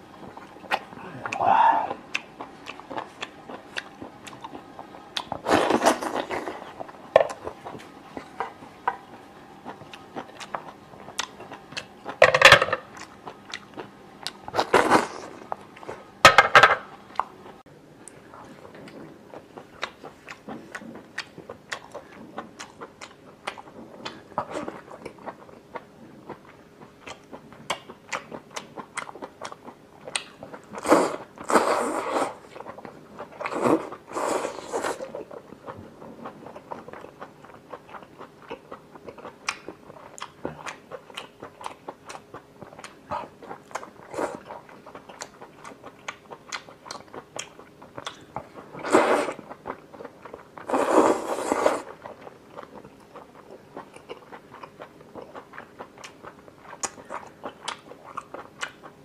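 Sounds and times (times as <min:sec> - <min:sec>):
wet chewing and biting: 0:35.0 - 0:59.0
loud slurps: 0:48.8 - 0:49.4, 0:50.7 - 0:51.9.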